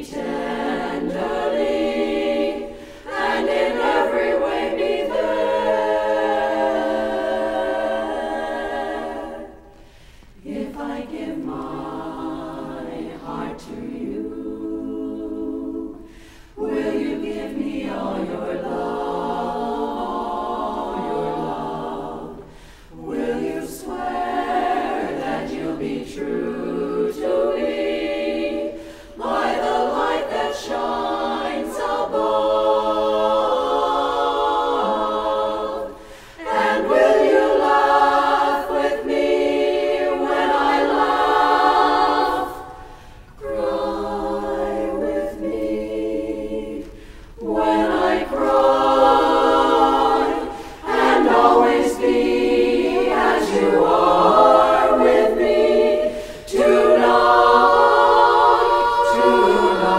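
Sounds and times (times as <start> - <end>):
women's a cappella chorus singing: 0.0 - 59.9.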